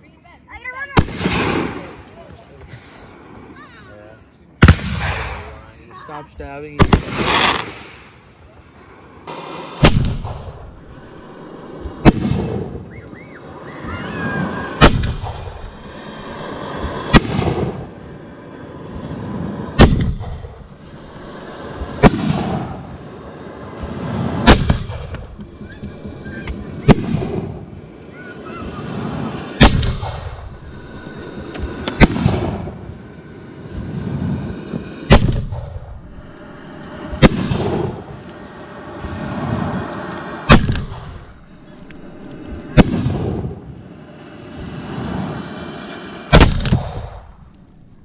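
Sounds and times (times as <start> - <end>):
fireworks bangs with rumbling echo: 0.7 - 3.7, 4.6 - 5.8, 6.4 - 11.2, 11.8 - 12.9, 14.3 - 15.8, 16.8 - 18.0, 19.8 - 20.8, 21.8 - 23.0, 23.8 - 33.1, 33.7 - 36.3, 36.9 - 38.3, 40.4 - 41.4, 42.0 - 44.0, 46.3 - 47.5.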